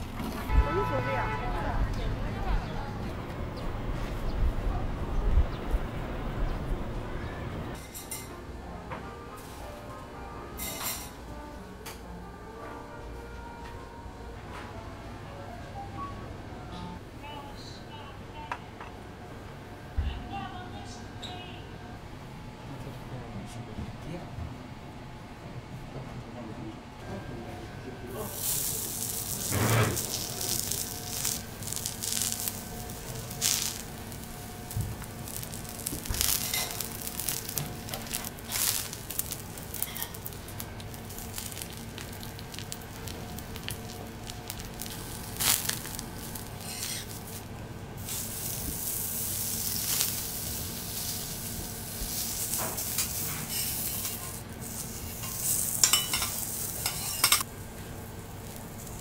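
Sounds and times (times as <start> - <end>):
food sizzling on griddle: 10.6 - 11.1, 28.1 - 59.0.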